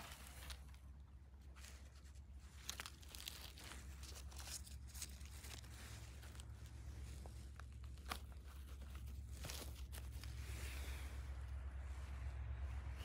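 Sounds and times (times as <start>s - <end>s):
dry needles and twigs rustling: 0.0s - 13.0s
steady low rumble: 0.0s - 13.0s
twigs snapping: 1.5s - 10.4s.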